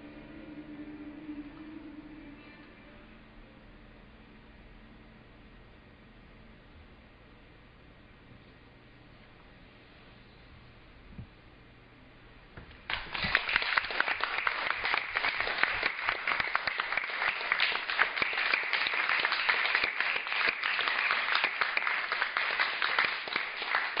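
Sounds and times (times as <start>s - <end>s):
audience applauding: 12.9s - 24.0s.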